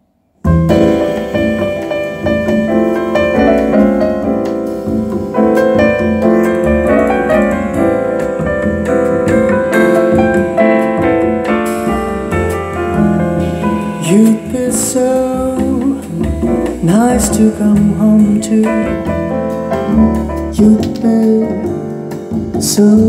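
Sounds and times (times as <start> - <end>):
piano music through speakers: 0.4 - 23.0.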